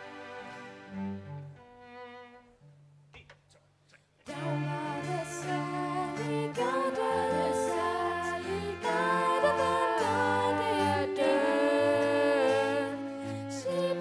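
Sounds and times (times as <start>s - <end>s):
cello playing low notes: 0.0s - 3.0s, 4.3s - 14.0s
girls singing together: 4.3s - 14.0s.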